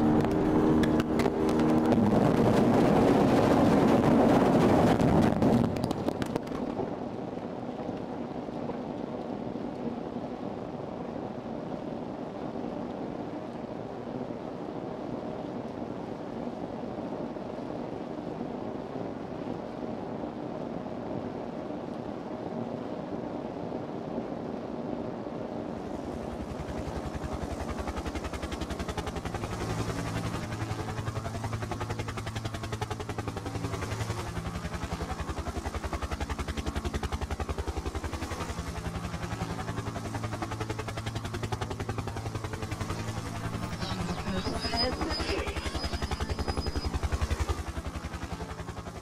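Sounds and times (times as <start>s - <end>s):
rapid throbbing with low hum: 0.0s - 5.8s, 26.0s - 49.0s
steady rushing noise: 0.0s - 49.0s.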